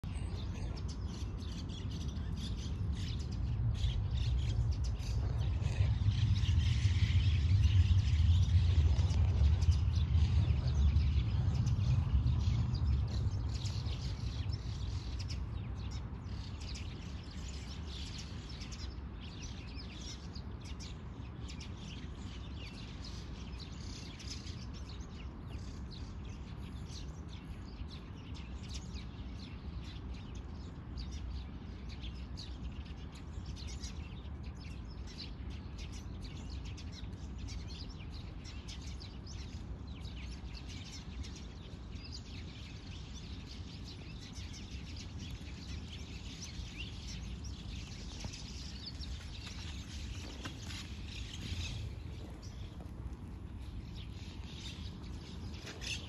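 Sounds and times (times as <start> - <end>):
birds chirping: 0.0 - 56.0
low rumble: 2.1 - 16.1.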